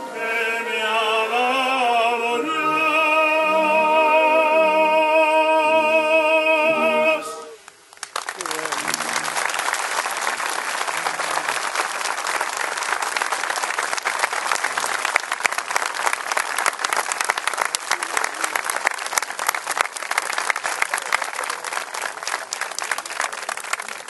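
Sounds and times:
crowd applauding: 0:07.9 - 0:24.0.

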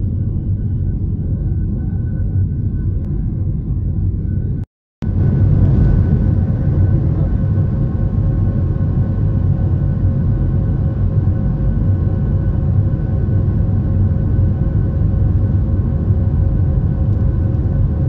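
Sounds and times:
jet engines roaring in cabin: 0:00.0 - 0:18.0.

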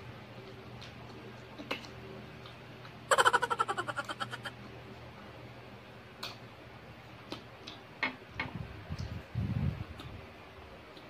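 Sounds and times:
wet chewing clicks and smacks: 0:00.4 - 0:03.0, 0:07.2 - 0:07.9, 0:09.9 - 0:10.2.

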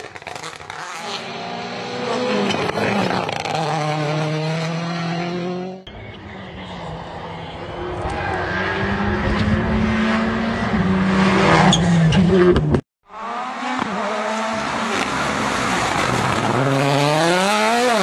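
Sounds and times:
turbocharged engine revving: 0:08.3 - 0:18.0.

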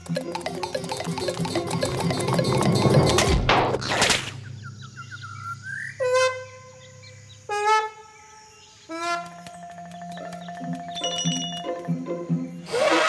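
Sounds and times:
rising bird-like chirps: 0:04.4 - 0:07.4, 0:09.3 - 0:11.9
honking horn-like notes: 0:06.0 - 0:06.8, 0:08.9 - 0:09.6.

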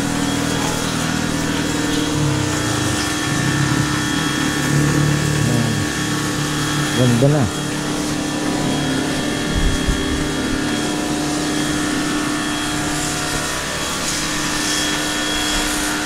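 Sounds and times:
motor-driven machine humming: 0:00.0 - 0:16.0.

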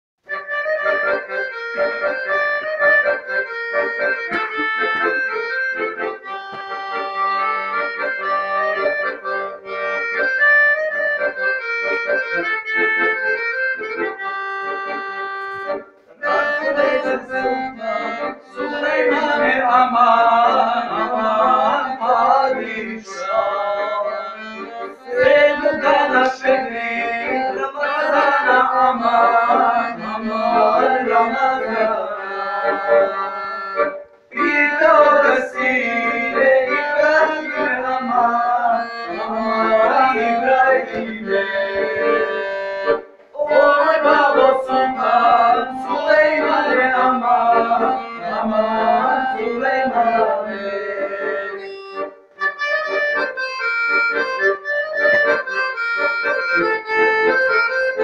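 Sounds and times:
accordion folk melody: 0:00.2 - 0:58.0
man singing: 0:16.2 - 0:42.6, 0:43.4 - 0:51.8.

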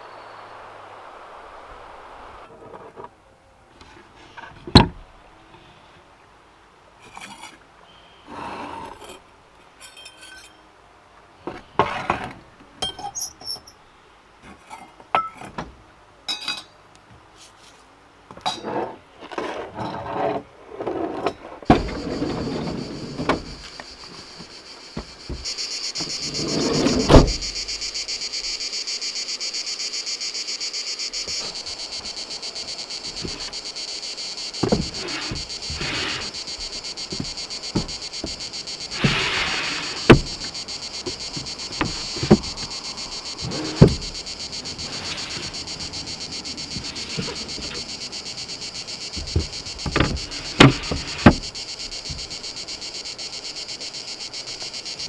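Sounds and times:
high-pitched insect chorus: 0:21.7 - 0:55.0
loud thump: 0:25.0 - 0:27.5, 0:39.0 - 0:40.5.

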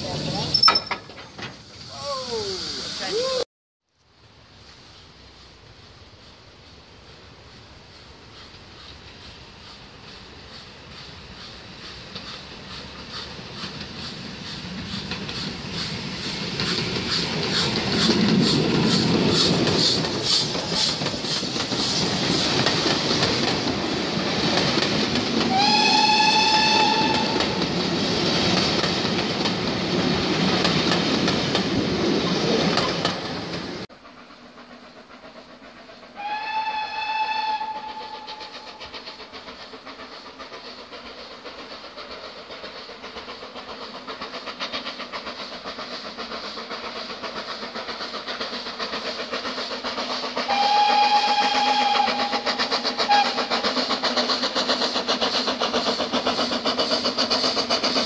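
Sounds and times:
train coaches rolling past: 0:00.0 - 0:03.4, 0:04.1 - 0:58.0
steam locomotive exhaust beats: 0:04.5 - 0:58.0
steam whistle: 0:25.5 - 0:27.6, 0:36.2 - 0:38.7, 0:50.4 - 0:53.6.

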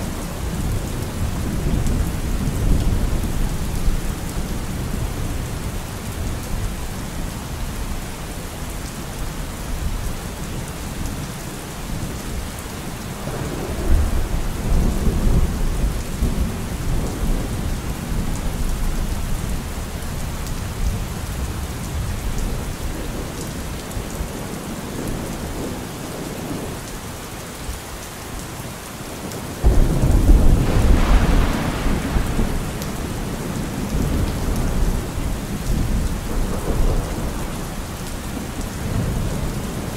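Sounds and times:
steady rain: 0:00.0 - 0:39.9
thunder rumbling: 0:29.6 - 0:39.9.

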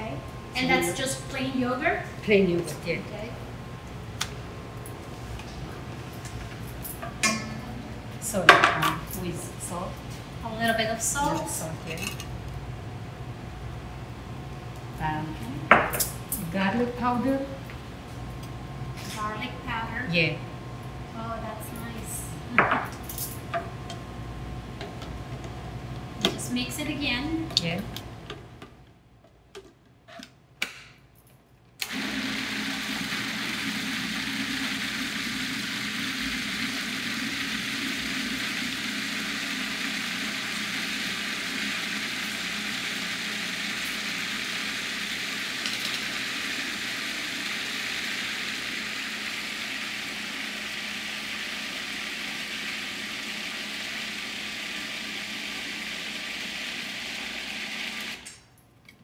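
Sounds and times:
food processor running: 0:31.8 - 0:58.4.

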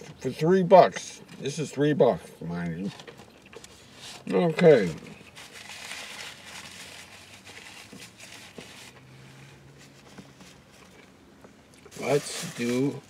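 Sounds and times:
paper napkin rustling: 0:03.7 - 0:10.8, 0:11.9 - 0:13.0.

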